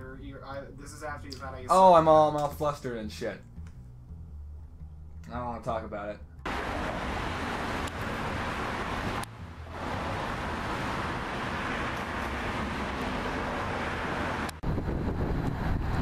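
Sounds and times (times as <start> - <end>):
road traffic noise: 6.2 - 16.0.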